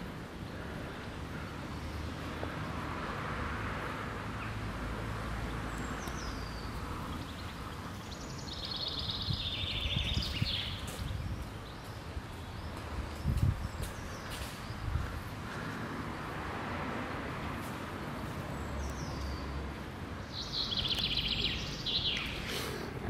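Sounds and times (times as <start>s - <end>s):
distant traffic rumble: 0.0s - 23.0s.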